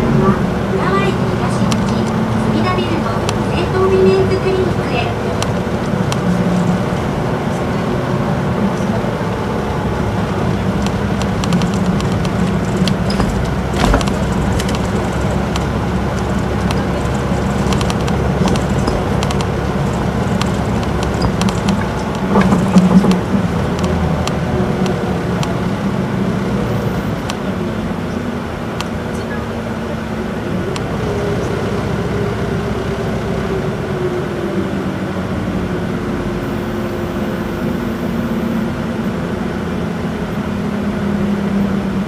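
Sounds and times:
bus diesel engine droning: 0.0 - 42.0
cabin clicks and rattles: 10.9 - 16.3.

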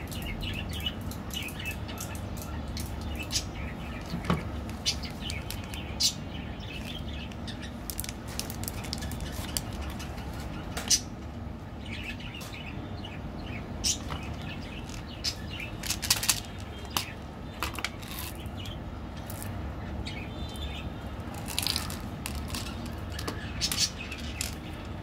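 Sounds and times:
candy buttons rattling: 15.8 - 17.0.

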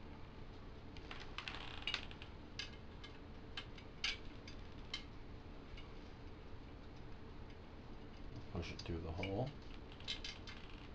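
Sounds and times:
bicycle spokes clicking: 9.7 - 10.9.

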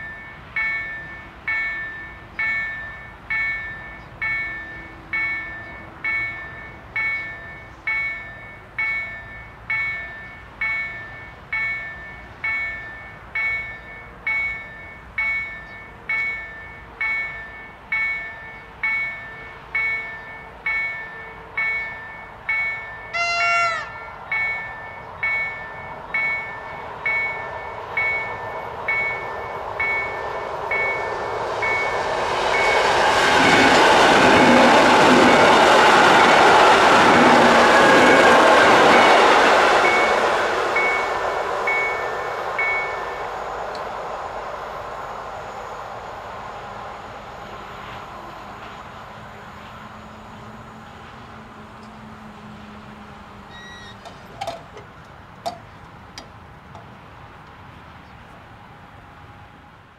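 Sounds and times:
level-crossing warning bell: 0.0 - 56.9
electric train running noise: 0.0 - 59.6
rising-and-falling pitched call: 23.2 - 24.0.

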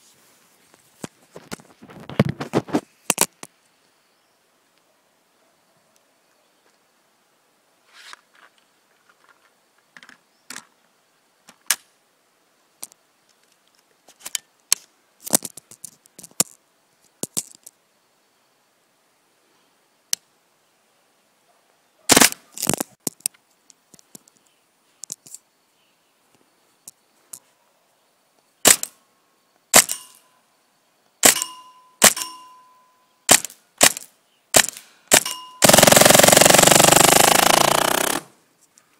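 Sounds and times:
paintball marker shots: 22.1 - 22.6, 28.6 - 29.0, 29.8 - 30.2, 31.2 - 32.4, 33.3 - 38.3.

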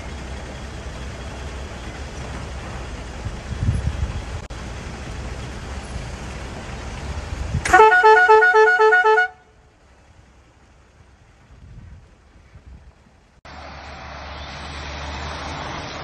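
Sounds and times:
vehicle rumble on dirt track: 0.0 - 16.0
vehicle horn toots: 7.6 - 9.6.

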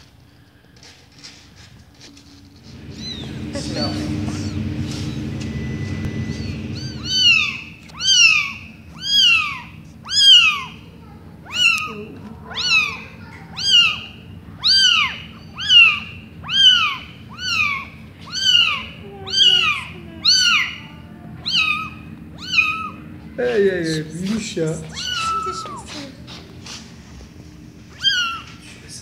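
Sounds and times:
low steady hum: 0.0 - 29.0
kitten mewing: 2.8 - 5.4, 6.2 - 23.6, 24.8 - 26.4, 27.9 - 29.0.

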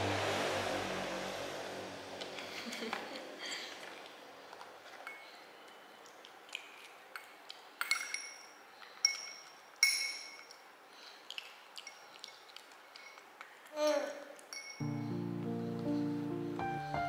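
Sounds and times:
spoon clinking on ceramic bowl: 7.8 - 10.5.

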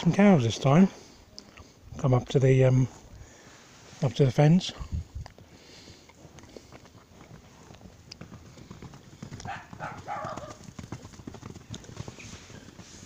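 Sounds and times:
rustling noise: 11.8 - 13.0.

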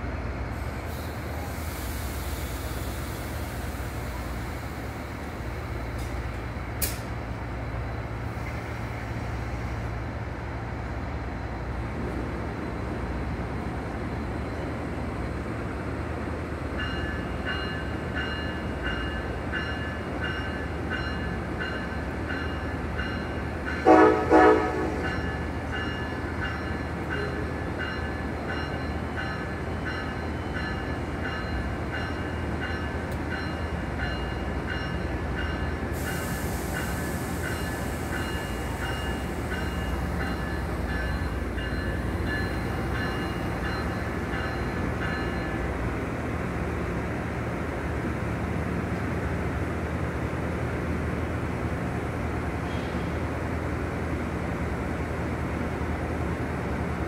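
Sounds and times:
train engine humming: 0.0 - 57.0
locomotive bell ringing: 16.8 - 45.8
train horn blasts: 23.8 - 25.1.

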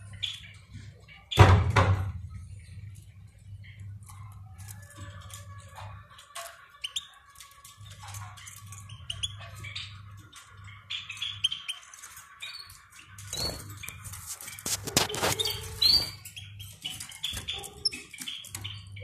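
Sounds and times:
goldfinches chirping: 8.1 - 14.1.

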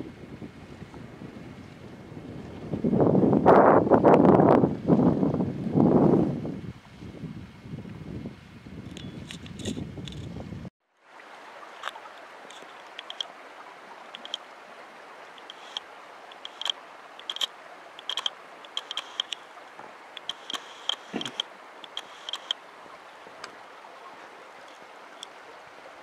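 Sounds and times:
wind buffeting microphone: 0.0 - 10.7
water rushing among boulders: 11.0 - 26.0
water splashes and drips: 11.0 - 26.0.

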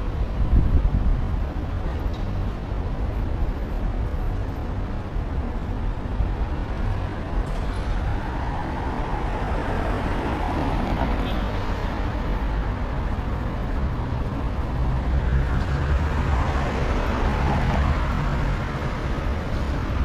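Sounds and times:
wind rumbling on microphone: 0.0 - 11.2
road traffic noise: 0.0 - 20.0.

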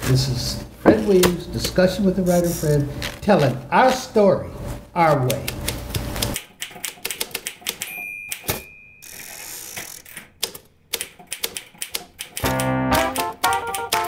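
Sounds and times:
typewriter keys clacking: 5.3 - 8.6, 9.7 - 14.0
typewriter bell ding: 7.8 - 9.2
piano-like music: 12.4 - 14.0.

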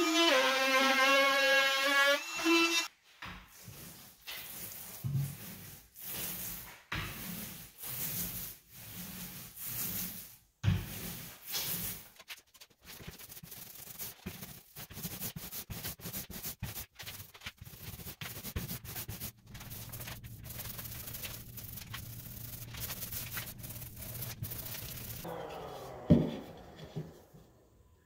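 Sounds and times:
paint roller rubbing hiss: 3.5 - 26.3
steady low hum: 19.5 - 25.2.

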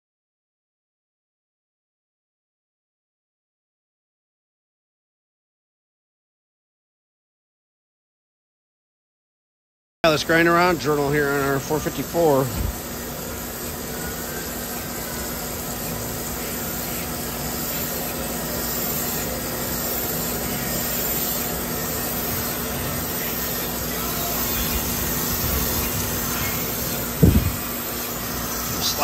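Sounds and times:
crankshaft grinder running: 10.1 - 29.0.

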